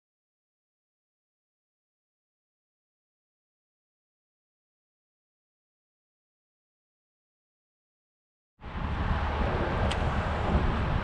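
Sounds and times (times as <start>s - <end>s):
wind buffeting microphone: 8.6s - 11.0s.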